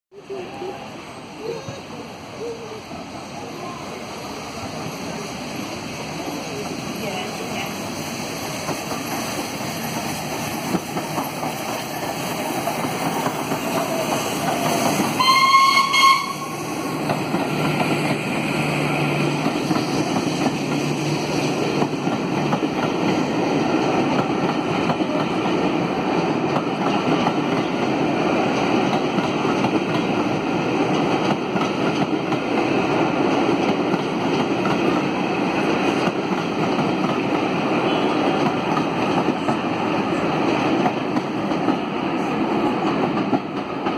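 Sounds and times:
coaches rumbling on rails: 0.2 - 43.9
steam whistle: 15.2 - 16.8.

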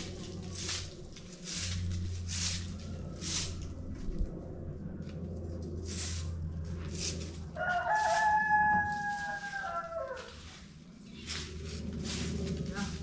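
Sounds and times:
broom swishing on paving: 0.0 - 3.9, 5.8 - 13.0
rooster crowing: 7.5 - 10.6.

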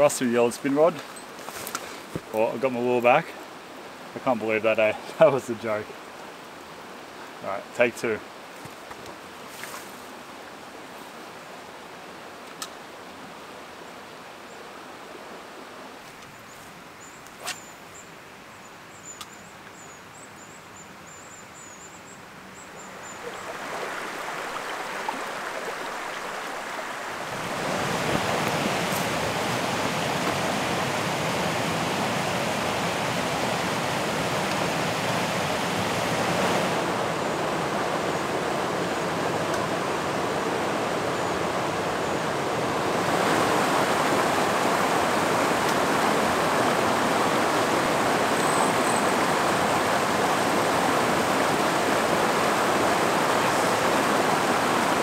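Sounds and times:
faint high-pitched chirping: 16.3 - 23.5
river water rushing over rocks: 22.9 - 55.0.

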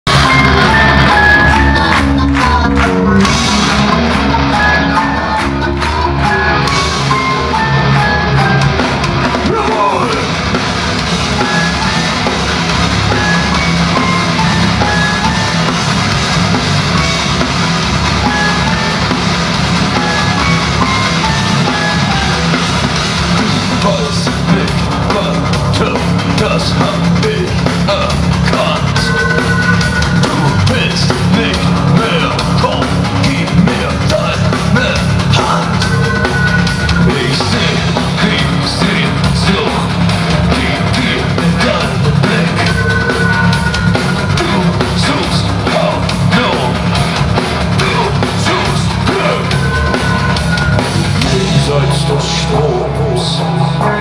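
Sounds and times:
bass guitar: 0.0 - 54.0
distorted electric guitars: 0.0 - 54.0
melody line of stepped notes: 0.1 - 26.4
drum kit: 0.1 - 54.0.

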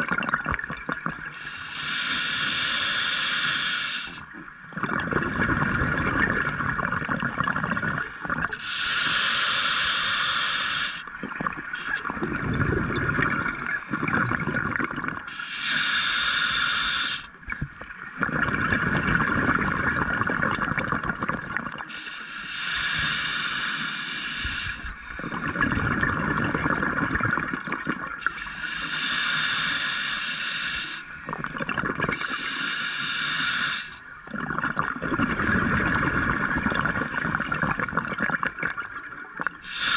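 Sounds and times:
hissing regulator breaths: 1.4 - 4.2, 7.5 - 11.1, 15.3 - 17.7, 21.9 - 25.8, 28.2 - 31.4, 32.2 - 34.0, 39.6 - 39.9
bubbling exhaled air: 4.8 - 39.9.

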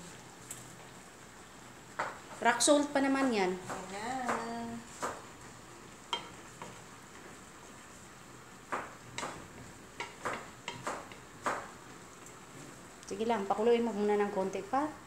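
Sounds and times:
low steady sizzle: 0.0 - 15.0.

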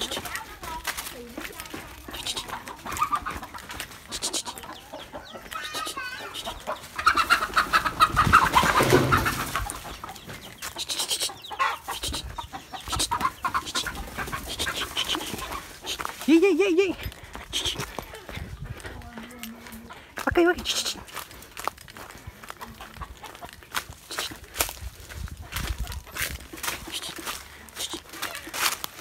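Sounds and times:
footsteps through dry leaves: 0.0 - 12.2, 12.8 - 16.6, 17.2 - 29.0
chickens squawking and clucking: 0.0 - 29.0.

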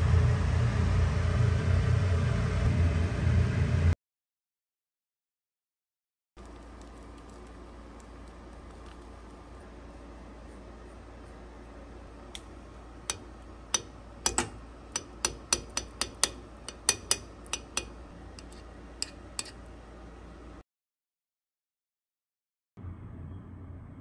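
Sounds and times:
metal spoon tapping glass dish: 13.8 - 19.6.

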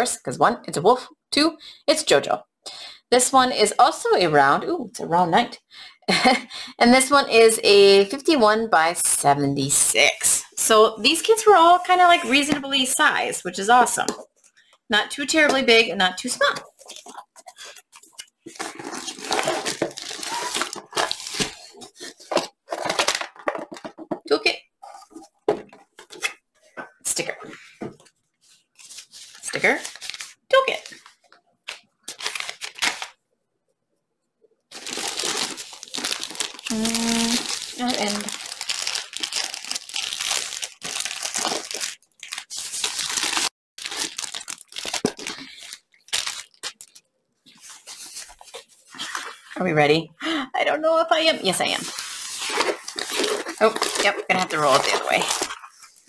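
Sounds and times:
plastic crinkling: 16.6 - 24.1, 34.7 - 49.5, 51.7 - 56.0.

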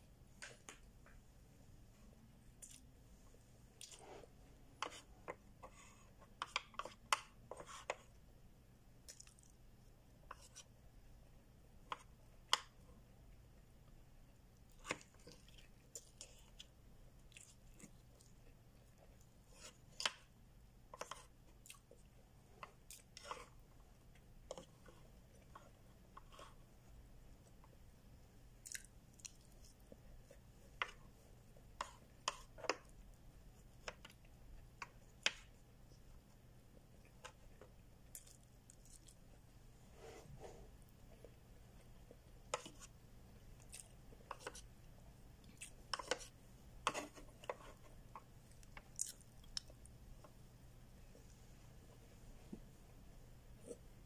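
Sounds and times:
quiet chewing: 2.0 - 6.9, 9.0 - 9.6, 14.6 - 20.3, 20.9 - 27.9, 28.5 - 33.1, 33.8 - 50.4.

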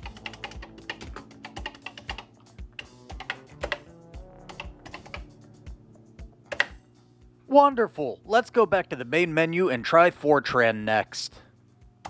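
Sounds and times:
keyboard key clicks: 0.0 - 3.8.

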